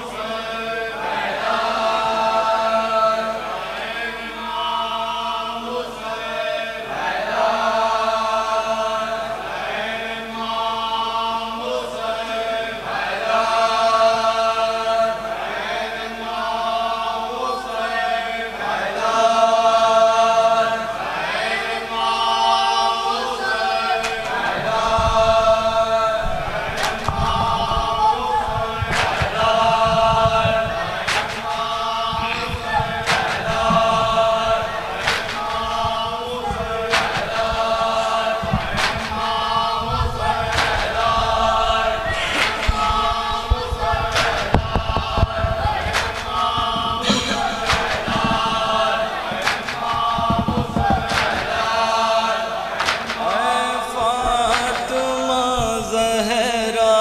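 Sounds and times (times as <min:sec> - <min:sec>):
men chanting in unison: 0:00.0 - 0:57.0
hands slapping chest: 0:24.0 - 0:51.8.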